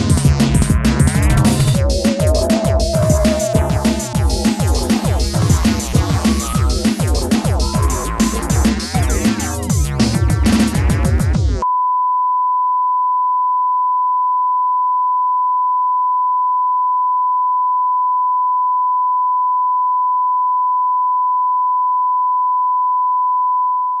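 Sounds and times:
electronic music: 0.0s - 11.6s
steady high electronic beep: 1.6s - 6.9s.

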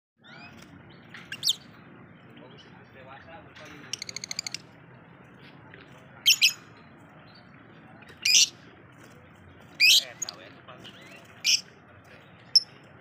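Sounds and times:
lovebird chattering: 1.2s - 1.7s, 3.9s - 4.6s, 6.2s - 6.6s, 8.2s - 8.5s, 9.8s - 10.4s, 11.4s - 11.6s.

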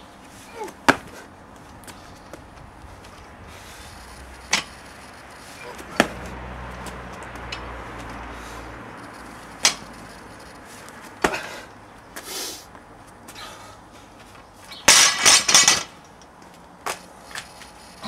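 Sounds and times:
barbell dropped on rubber mat: 14.8s - 15.9s.

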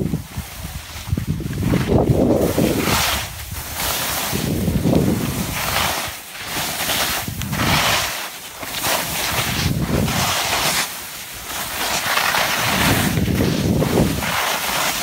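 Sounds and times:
wind buffeting microphone: 0.0s - 6.0s, 7.1s - 8.0s, 9.2s - 10.6s, 12.5s - 14.4s
skis carving on snow: 0.0s - 15.0s.

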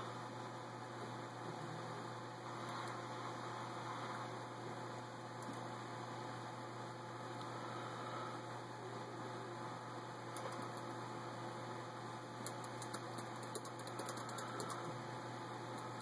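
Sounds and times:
low hum and hiss: 0.0s - 16.0s.

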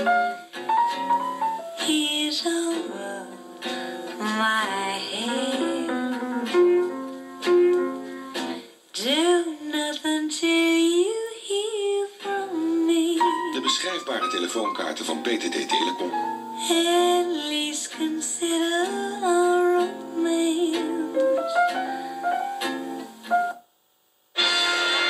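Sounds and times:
instrumental accompaniment: 0.0s - 8.8s, 12.2s - 23.7s, 24.4s - 25.0s
woman singing: 1.8s - 3.5s, 4.2s - 6.8s, 9.0s - 13.5s, 16.6s - 21.8s.

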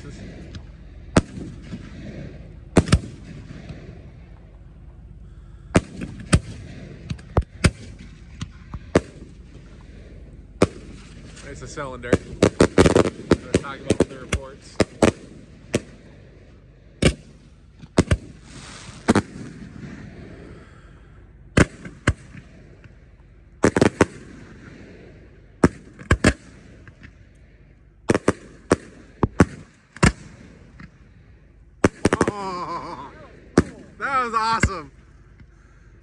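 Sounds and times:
fireworks bangs: 0.0s - 16.4s, 17.0s - 20.7s, 21.5s - 23.0s, 23.6s - 27.2s, 28.1s - 31.0s, 31.8s - 35.0s
fireworks hissing: 18.2s - 20.6s.

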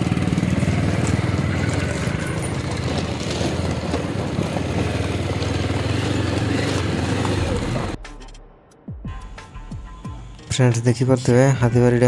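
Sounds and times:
motorcycle engine running: 0.0s - 8.0s
tyres on gravel road: 0.0s - 8.0s.

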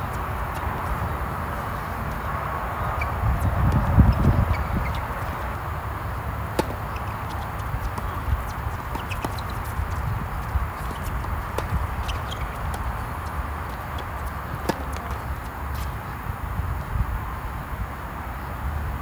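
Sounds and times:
tennis ball pops: 6.6s - 6.9s, 14.6s - 15.2s.

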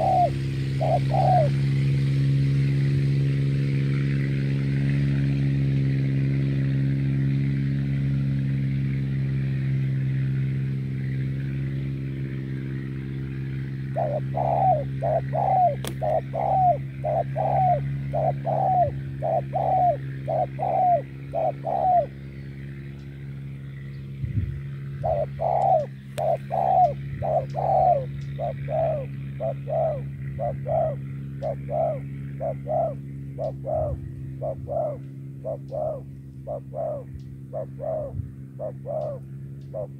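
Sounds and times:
doves cooing: 0.0s - 2.4s, 13.5s - 22.9s, 24.6s - 39.9s
low mechanical hum: 0.0s - 39.9s.

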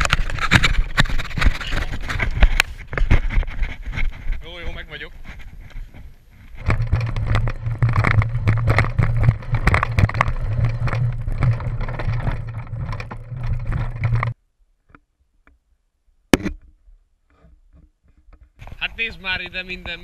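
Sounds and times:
mountain bike rattling over rocks: 0.0s - 14.4s.

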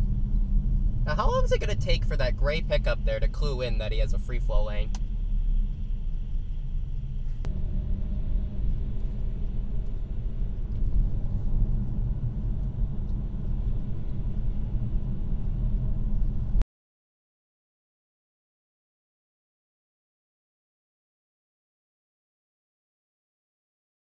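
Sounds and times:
car engine and tyre rumble: 0.0s - 16.6s.

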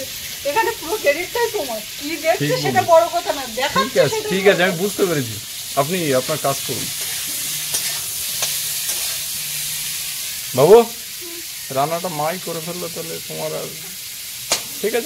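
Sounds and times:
oil sizzling in a pan: 0.0s - 15.0s
spatula stirring food: 2.2s - 12.7s
spatula clicking against pan: 7.0s - 9.1s, 14.5s - 14.7s.

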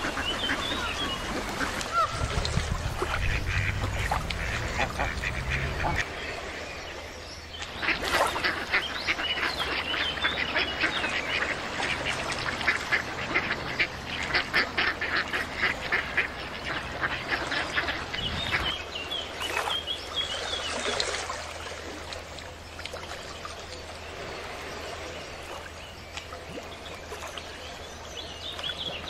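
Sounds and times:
ducks quacking: 0.0s - 6.2s, 7.8s - 18.8s.

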